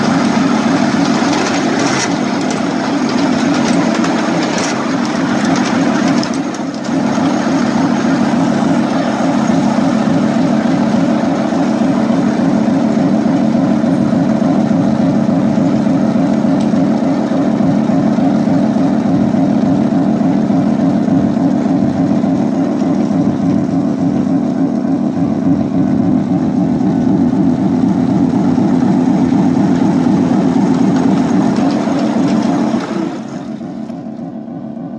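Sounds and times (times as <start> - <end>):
miniature locomotive on rails: 0.0 - 12.8, 28.6 - 34.0.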